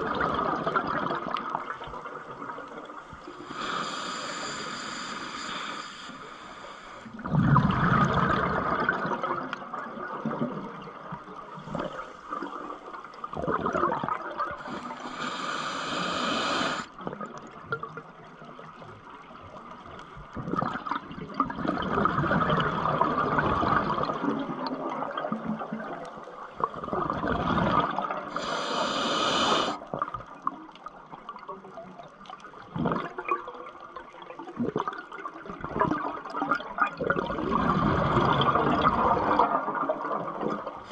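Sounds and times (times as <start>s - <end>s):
exhaled bubbles gurgling underwater: 0.0s - 40.9s
regulator hiss: 3.4s - 7.1s, 14.6s - 16.9s, 28.3s - 29.8s.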